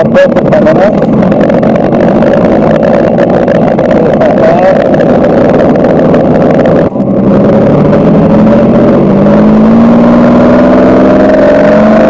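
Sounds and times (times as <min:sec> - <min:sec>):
propeller plane engine through speaker: 0:00.0 - 0:07.3.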